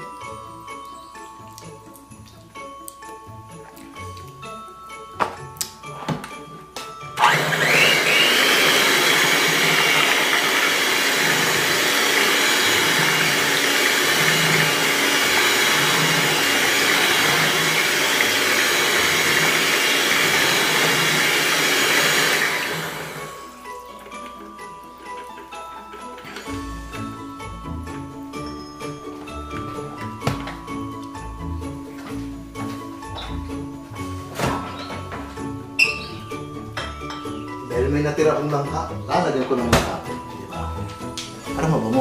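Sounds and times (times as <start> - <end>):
electric hand mixer whirring: 7.2 - 23.8.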